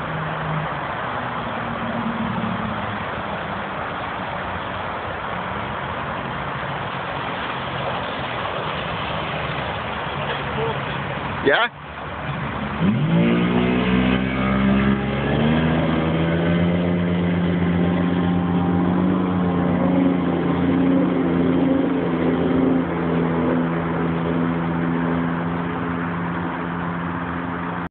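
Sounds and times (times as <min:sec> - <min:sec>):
motorboat engine running: 0:00.9 - 0:27.9.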